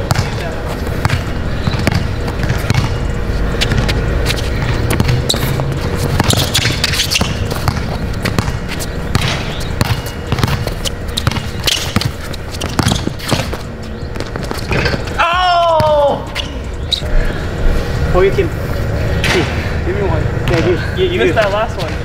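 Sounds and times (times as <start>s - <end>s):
basketball bouncing on court: 0.0s - 16.5s.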